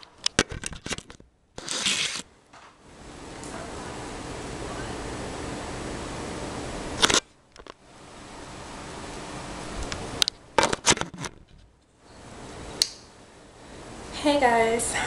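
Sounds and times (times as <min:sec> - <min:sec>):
webcam handling clicks and knocks: 0:00.0 - 0:01.2, 0:10.2 - 0:11.6.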